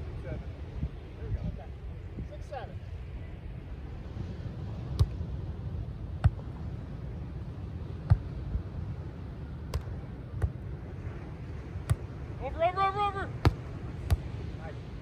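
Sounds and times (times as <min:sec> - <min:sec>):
low background rush: 0:00.0 - 0:15.0
hands slapping volleyball: 0:04.9 - 0:05.2, 0:09.7 - 0:10.6, 0:11.8 - 0:12.1.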